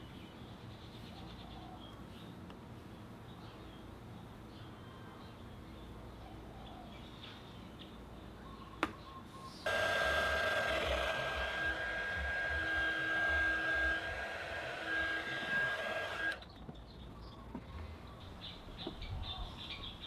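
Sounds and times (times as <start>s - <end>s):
heat gun fan whining: 9.7s - 16.4s.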